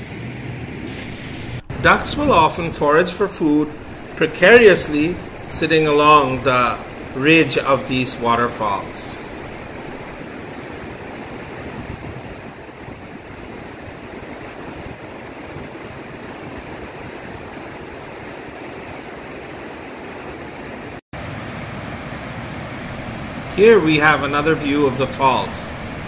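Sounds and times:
waterfall rushing: 0.9s - 15.4s, 21.2s - 26.0s.

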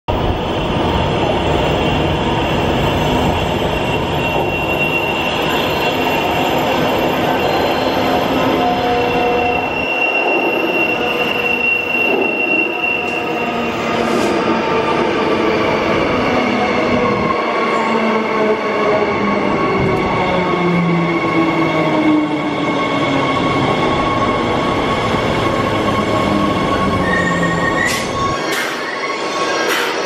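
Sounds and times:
train rumble in tunnel: 0.1s - 30.0s
high steady squeal: 1.8s - 14.4s.

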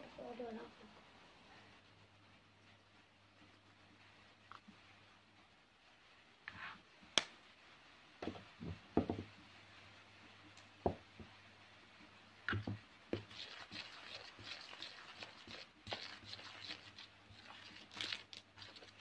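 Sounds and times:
stirring batter in bowl: 12.5s - 19.0s.

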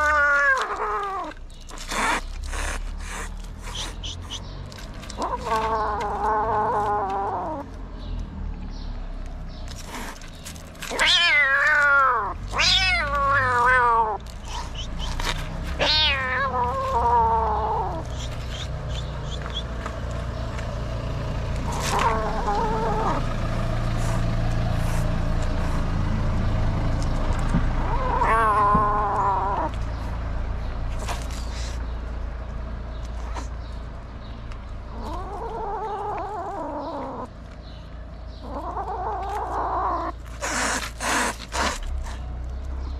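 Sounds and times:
kitten meowing in distress: 15.8s - 18.1s, 27.8s - 29.8s.

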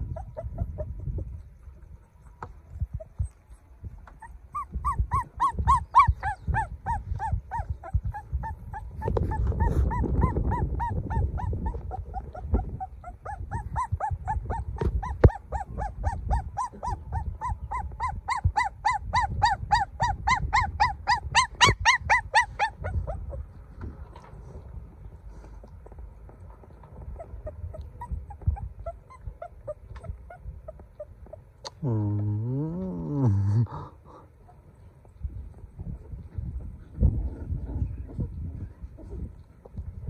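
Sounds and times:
puppy whining: 0.0s - 23.6s, 25.5s - 33.7s.

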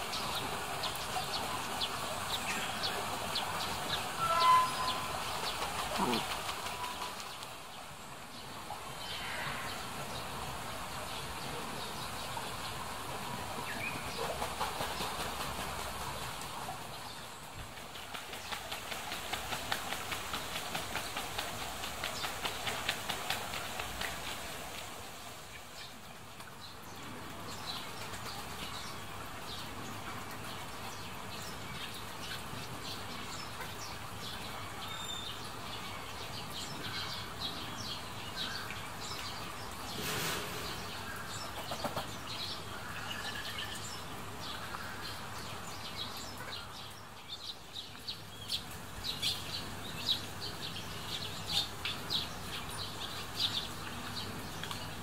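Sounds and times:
small birds chirping: 0.0s - 10.3s.

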